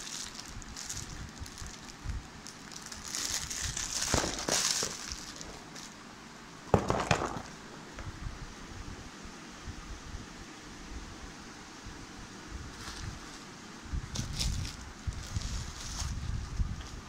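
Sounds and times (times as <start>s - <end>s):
plastic bag crinkling: 0.0s - 6.0s
sharp knocks: 6.7s - 7.5s.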